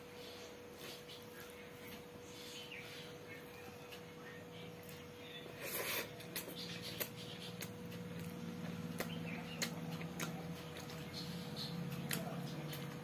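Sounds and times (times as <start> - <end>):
faint steady hum: 0.0 - 13.0
person chewing food: 4.8 - 13.0.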